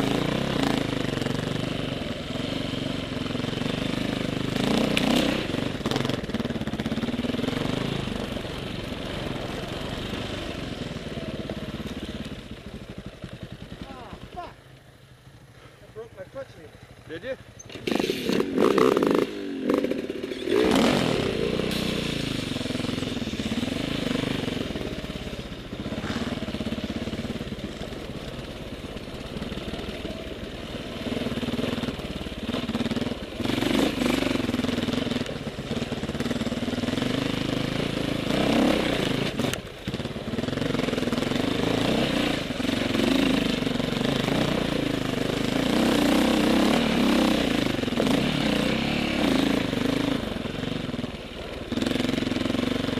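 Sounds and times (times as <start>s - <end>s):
dirt bike engine revving: 0.0s - 14.6s, 17.5s - 52.9s.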